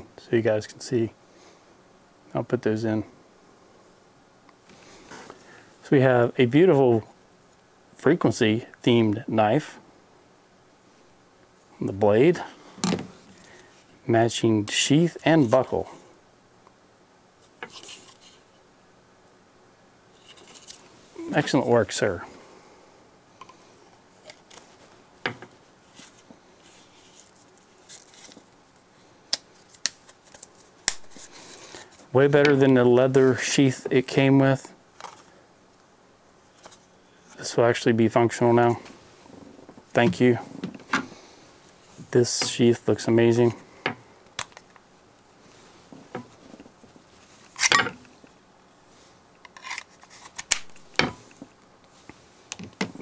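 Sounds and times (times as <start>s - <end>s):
handling rustle: 20.1s - 22.2s, 23.9s - 28.6s.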